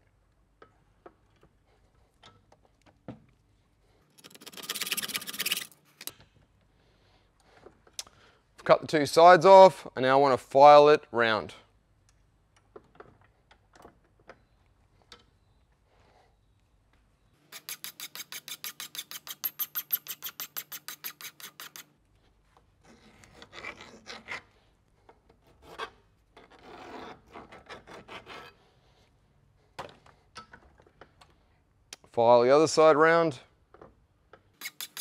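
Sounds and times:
hand file rasping on metal: 4.2s - 5.7s, 17.4s - 21.9s, 22.8s - 24.6s, 25.4s - 28.6s, 34.6s - 35.0s.

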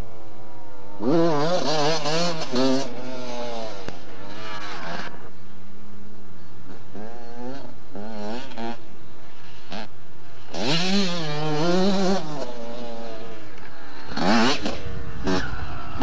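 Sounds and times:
motocross bike engine revving: 0.5s - 5.4s, 6.7s - 16.0s.

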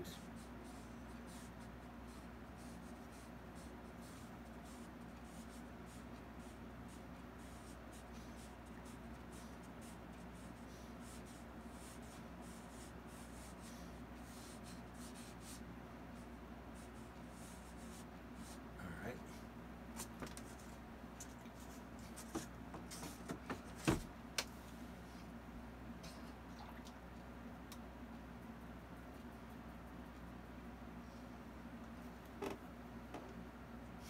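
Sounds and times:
low steady hum: 0.0s - 34.0s
paintbrush scratching on canvas: 0.2s - 15.6s.

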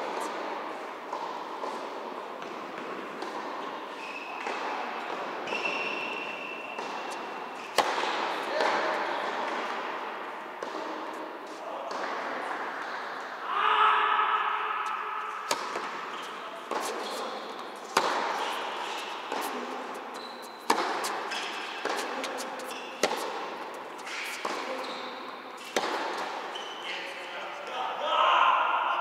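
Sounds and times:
tennis ball hits echoing: 6.6s - 13.3s, 14.3s - 20.1s, 20.7s - 24.8s, 25.6s - 26.4s.

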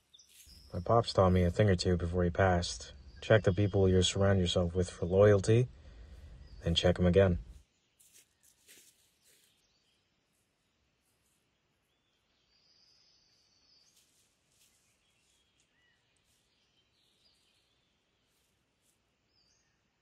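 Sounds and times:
soft crackles: 0.0s - 1.8s, 7.2s - 9.7s, 13.8s - 19.2s.

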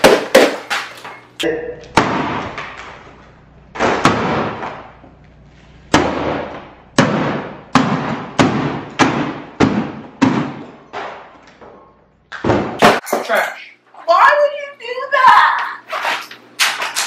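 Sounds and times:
hammer blows smashing plastic: 0.0s - 1.2s, 3.7s - 5.0s, 5.9s - 11.5s.

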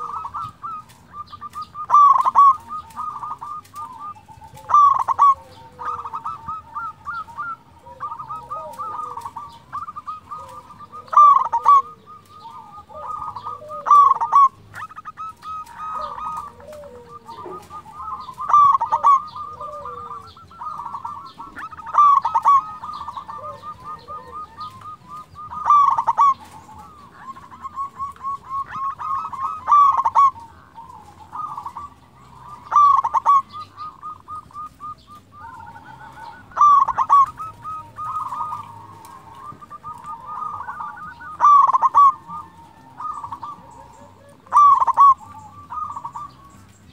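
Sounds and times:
dove cooing: 0.0s - 46.9s.

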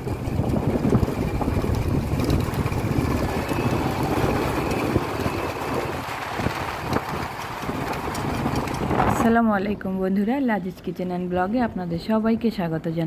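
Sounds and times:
motorcycle engine running: 0.0s - 9.4s
wind buffeting microphone: 0.0s - 12.8s.

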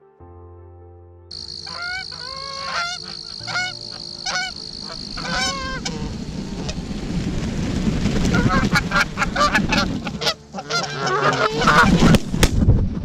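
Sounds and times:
steady high tone: 1.3s - 7.2s
geese honking: 1.3s - 7.4s, 8.0s - 12.2s
rush of noise: 1.6s - 10.2s.

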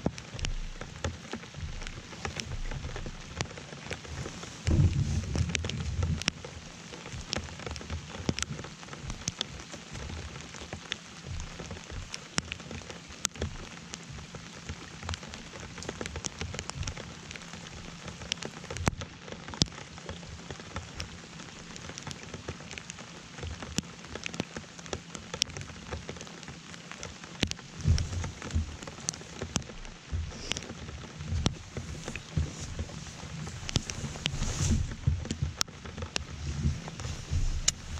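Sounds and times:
rain on water and a boat: 0.0s - 37.9s
low thumps: 0.2s - 3.4s, 4.6s - 7.4s, 27.6s - 37.9s.

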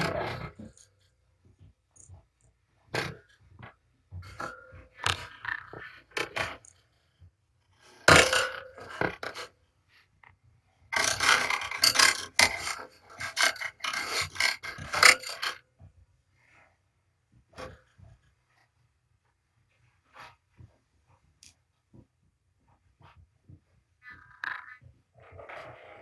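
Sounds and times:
kittens scratching with claws: 10.9s - 15.6s.

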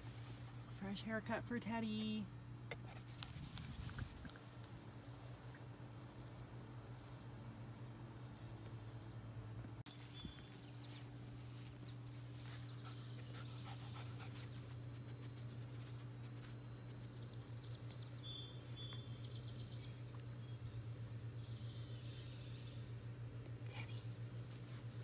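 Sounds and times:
low machine-like hum: 0.0s - 25.0s.

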